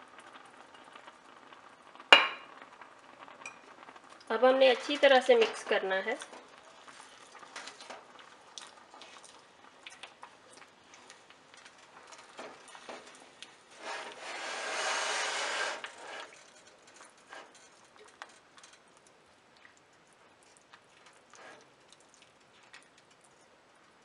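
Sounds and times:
spatula scraping a frying pan: 11.6 - 18.8, 21.3 - 21.7.

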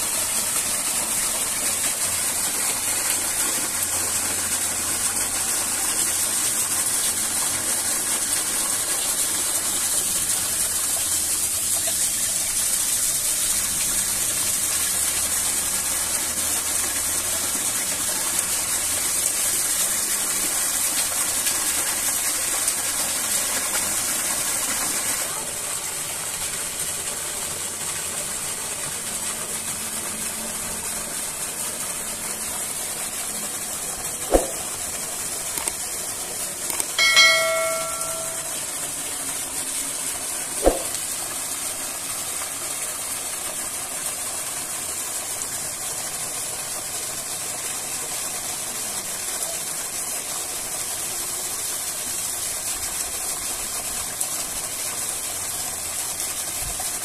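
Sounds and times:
sharp knock: 34.3 - 34.6, 40.6 - 41.0
waterfall rushing: 37.0 - 38.5.

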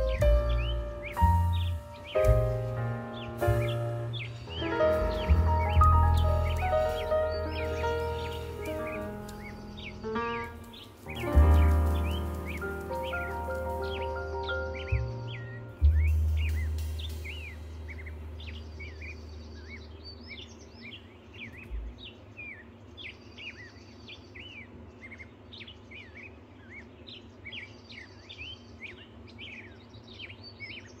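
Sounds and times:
deep low note: 0.0 - 20.3, 21.7 - 22.0
songbirds chirping: 0.0 - 31.0.

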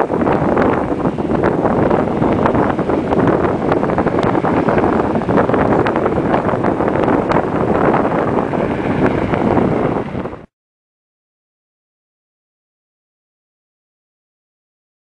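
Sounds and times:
wind buffeting microphone: 0.0 - 10.5.

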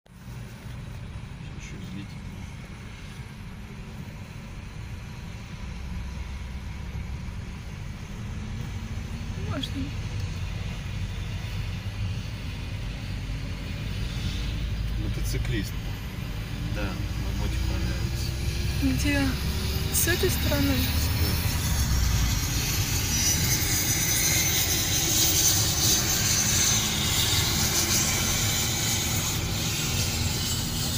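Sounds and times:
car engine and tyre rumble: 0.1 - 30.9
hiss: 20.9 - 30.9.

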